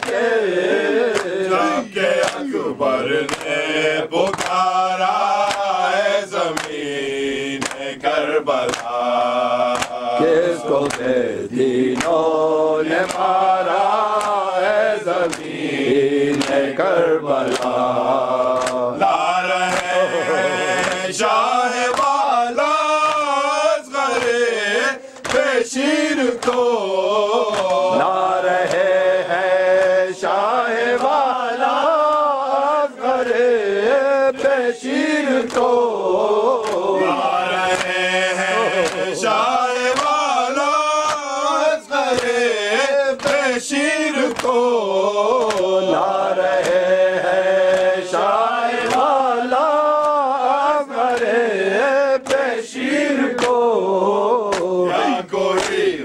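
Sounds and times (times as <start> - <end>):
lead singer wavering melody: 0.0 - 5.4
hands slapping chests: 0.0 - 56.0
men chanting together: 0.0 - 56.0.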